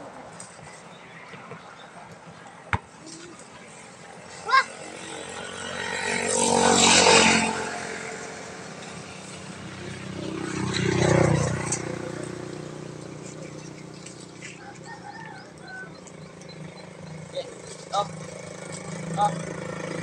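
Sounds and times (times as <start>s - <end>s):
vehicle engine passing: 3.6s - 20.0s.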